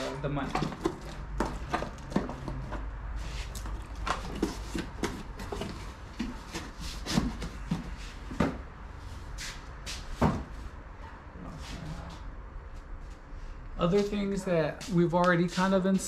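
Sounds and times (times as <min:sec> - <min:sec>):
knocks and clatter: 0:00.0 - 0:03.0.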